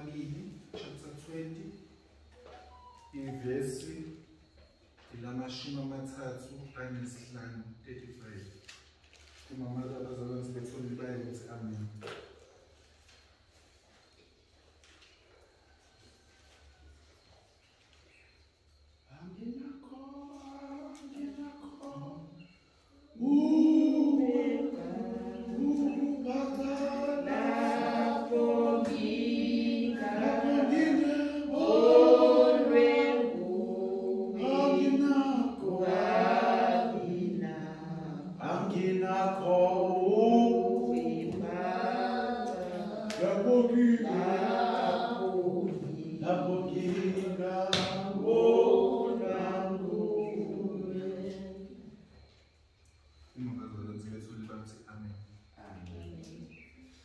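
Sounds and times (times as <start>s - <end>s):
congregation singing a hymn: 0.0s - 8.4s, 19.1s - 52.2s.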